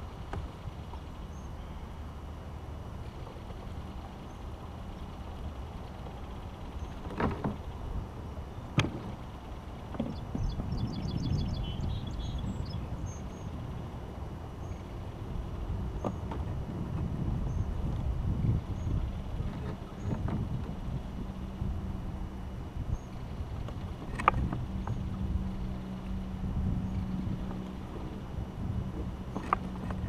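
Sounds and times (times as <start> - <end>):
steady low rumble: 0.0 - 30.0
small bird chirping: 10.1 - 13.5
gear knocking on plastic kayak: 23.6 - 25.2, 28.9 - 30.0.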